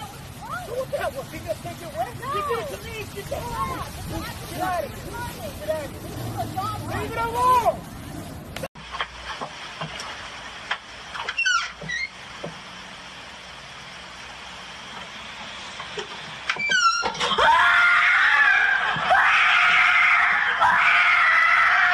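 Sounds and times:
short high squeaks: 11.2s - 12.2s, 16.5s - 17.4s
person screaming in fright: 17.4s - 21.9s.

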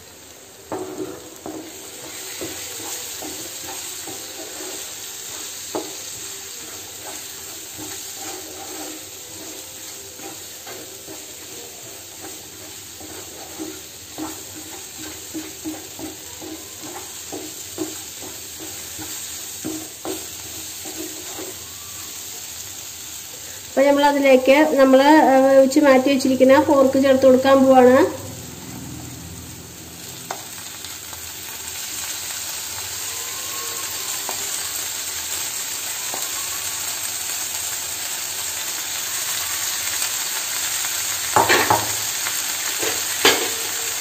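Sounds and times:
masala sizzling in a frying pan: 0.0s - 44.0s
spatula scraping the pan: 0.7s - 23.6s, 31.7s - 37.4s, 39.0s - 44.0s.

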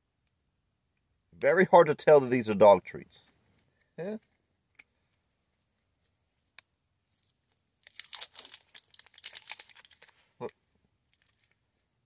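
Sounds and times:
plastic wrapper tearing and crinkling: 7.1s - 10.2s, 11.1s - 11.6s.

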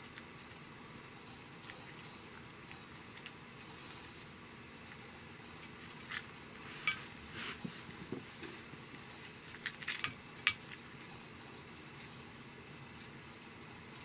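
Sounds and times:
cat chewing crunchy fish: 0.0s - 6.8s.

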